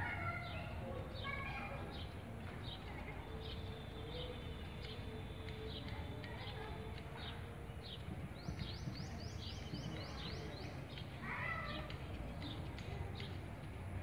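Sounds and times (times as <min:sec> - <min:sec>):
small birds chirping: 0:00.0 - 0:14.0.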